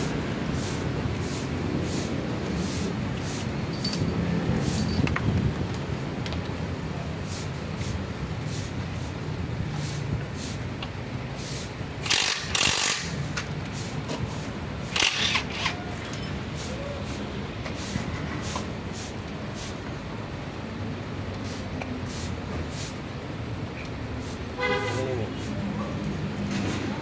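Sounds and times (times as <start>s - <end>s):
short noisy bursts: 11.4s - 13.9s.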